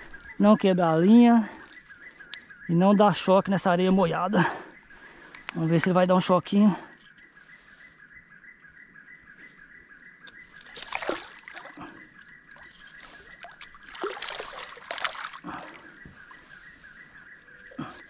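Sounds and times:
splashing in shallow water: 10.3 - 18.0.

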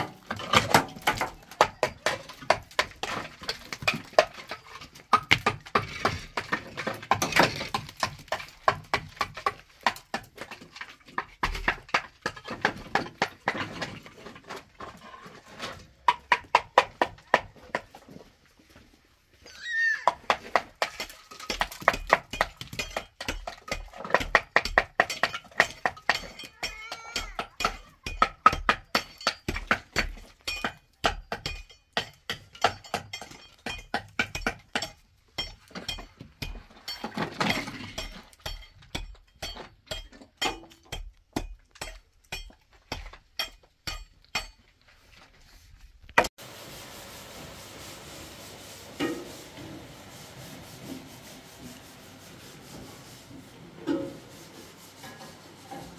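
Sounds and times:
trowel tapping concrete blocks: 0.0 - 14.0, 16.0 - 17.9, 20.1 - 44.6
pot hissing on gas stove: 46.4 - 55.9.

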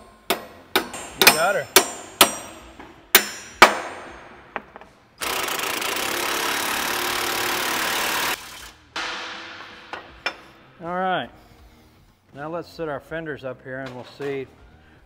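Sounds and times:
running power tool: 5.2 - 8.5
metallic knock: 9.0 - 10.9.

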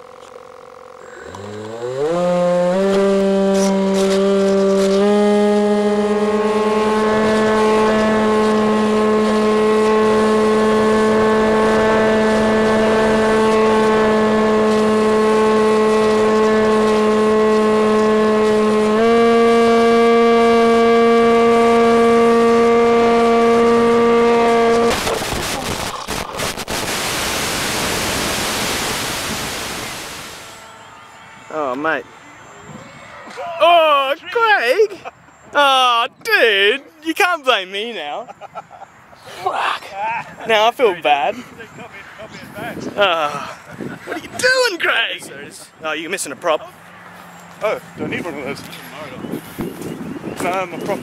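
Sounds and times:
electric motor and propeller whine: 0.0 - 33.4
sharp cracks of plane crashing: 24.9 - 27.2
radio static hiss: 24.9 - 30.7.

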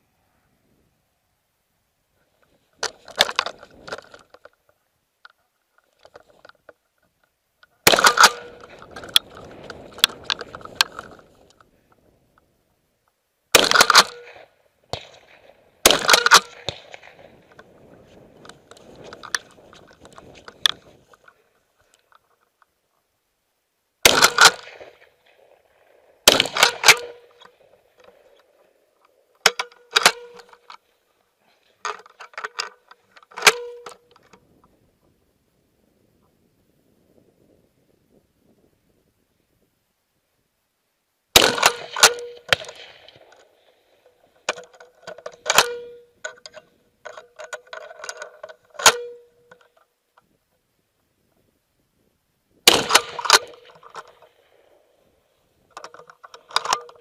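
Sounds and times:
rifle shots with echo: 7.8 - 11.0, 13.5 - 17.6, 24.0 - 28.6, 41.3 - 44.6, 52.6 - 55.1.

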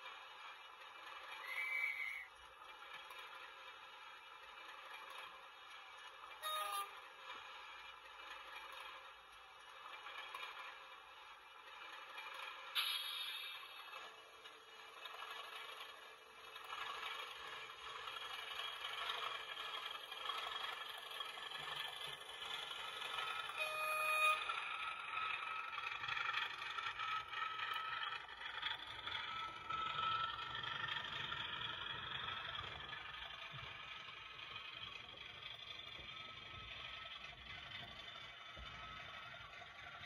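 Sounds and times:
model locomotive running: 0.0 - 40.0
brief high tone: 6.4 - 6.9, 23.6 - 24.6.

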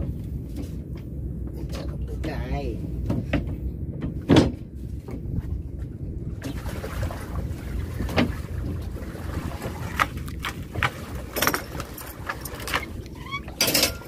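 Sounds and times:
steady low rumble: 0.0 - 14.0
knocks against a boat: 3.0 - 5.4, 8.0 - 8.4.

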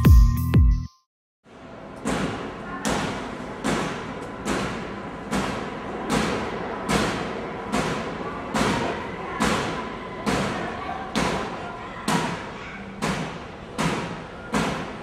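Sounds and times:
electronic music: 0.0 - 1.0
steady background hum: 1.5 - 15.0.

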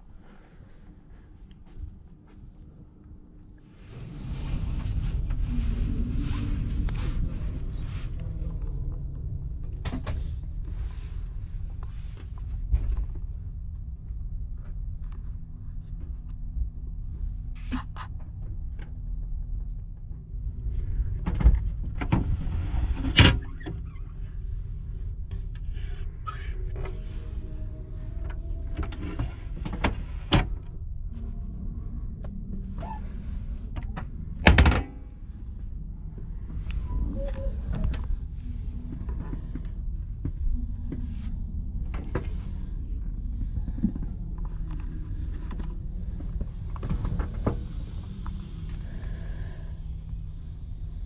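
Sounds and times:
steady low hum in train carriage: 0.0 - 51.0.

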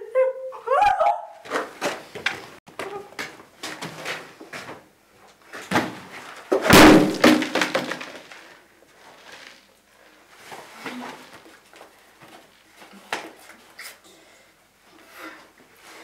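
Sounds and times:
loud crashing slam: 6.7 - 8.3.

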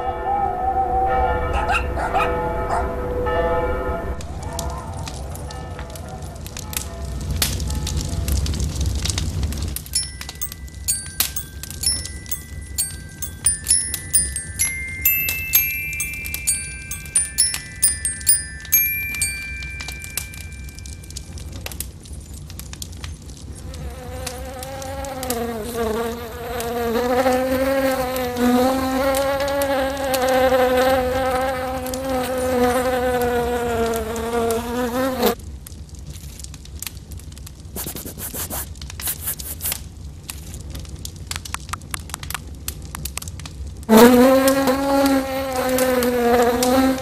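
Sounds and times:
light crackling clicks: 4.2 - 25.4, 35.6 - 43.7
fly buzzing: 23.8 - 35.4, 43.9 - 47.0.

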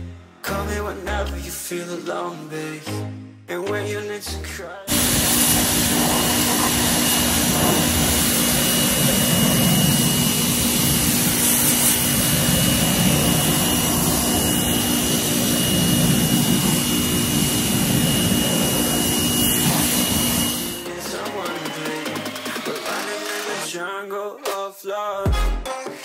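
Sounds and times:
pressure washer motor hum: 4.9 - 23.5
water jet hissing: 4.9 - 23.6.

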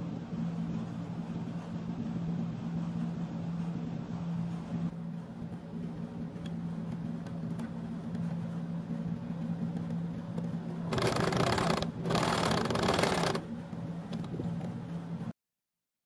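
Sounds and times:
electric sewing machine stitching: 10.9 - 13.4.

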